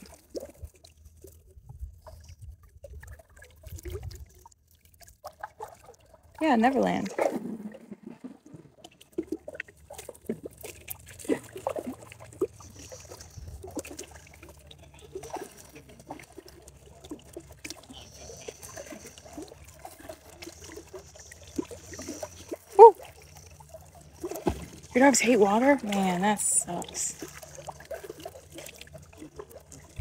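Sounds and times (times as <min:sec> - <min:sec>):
river water sloshing and splashing: 0:00.0 - 0:30.0.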